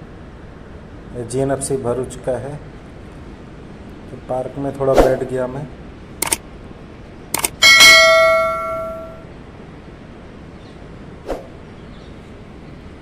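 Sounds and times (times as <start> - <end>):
loud metallic clang ringing: 7.6 - 9.2.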